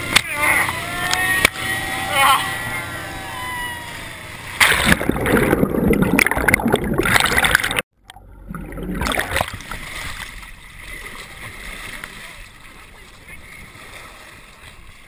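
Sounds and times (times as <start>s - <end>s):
muffled underwater churning foam: 0.0s - 15.0s
water rushing over microphone: 0.0s - 15.0s.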